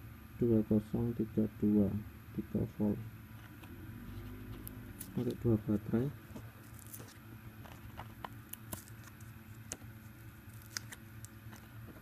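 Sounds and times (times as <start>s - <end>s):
paper and plastic crackling: 6.6s - 12.0s.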